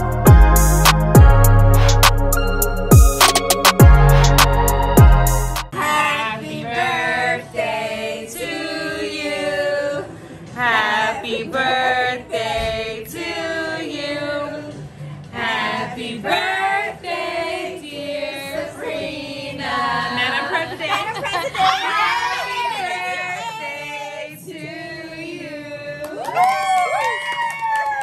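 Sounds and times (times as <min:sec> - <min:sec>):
women singing together: 0:05.7 - 0:26.6.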